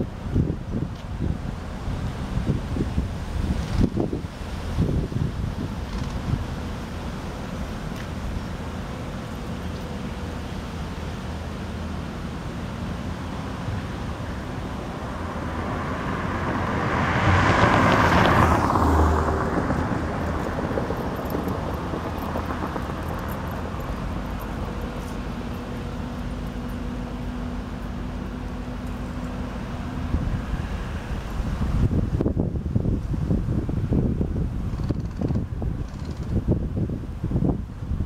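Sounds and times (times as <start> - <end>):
traffic noise: 0.0 - 38.0
vehicle passing: 13.4 - 34.3.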